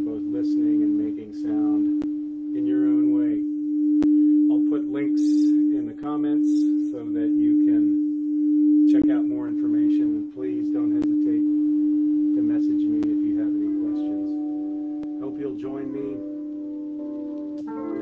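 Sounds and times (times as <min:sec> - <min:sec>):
singing bowl low tone: 0:00.0 - 0:18.0
bright ringing tone: 0:00.4 - 0:08.0, 0:12.4 - 0:18.0.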